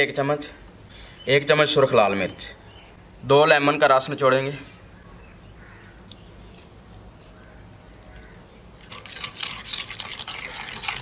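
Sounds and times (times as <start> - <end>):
metal spoon scraping clay bowl: 8.8 - 11.0.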